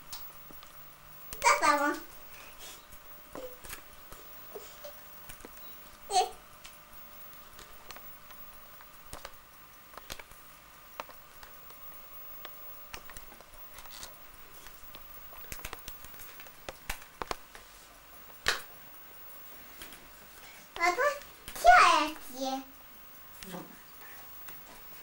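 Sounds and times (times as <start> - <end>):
faint steady hum: 0.0 - 25.0
small objects clicking and tapping: 7.4 - 10.4, 12.4 - 17.6.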